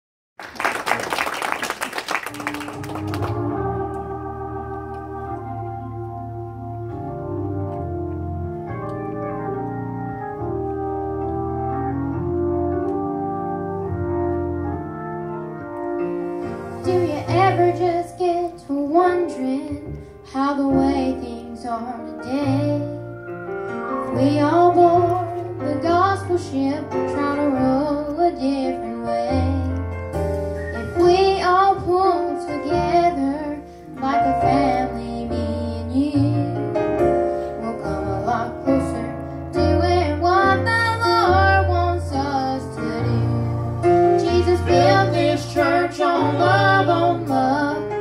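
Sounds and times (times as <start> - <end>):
organ playing sustained chords: 2.2 - 20.2, 21.2 - 28.1, 29.8 - 48.0
voices singing gospel: 3.0 - 6.9, 16.4 - 19.2, 30.6 - 36.4, 37.6 - 48.0.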